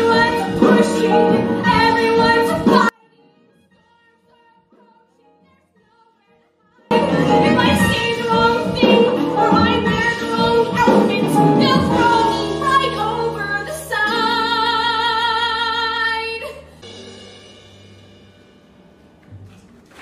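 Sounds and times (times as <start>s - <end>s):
woman singing a ballad: 0.0s - 3.0s, 3.8s - 16.7s.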